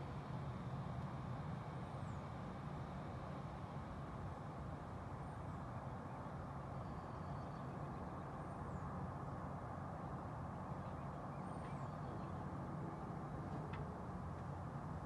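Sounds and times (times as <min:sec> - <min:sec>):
distant traffic rumble: 0:00.0 - 0:15.0
faint bird chirps: 0:06.7 - 0:08.9, 0:10.8 - 0:12.5.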